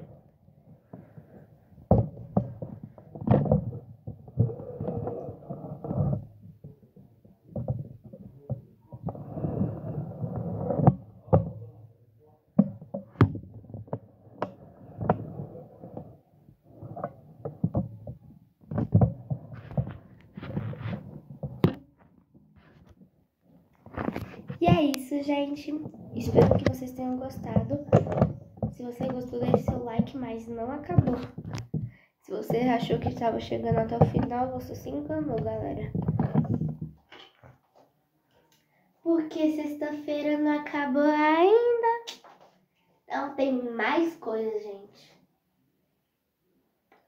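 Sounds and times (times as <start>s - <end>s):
microphone rubbing and rustling: 0.0s - 11.8s, 12.6s - 37.6s.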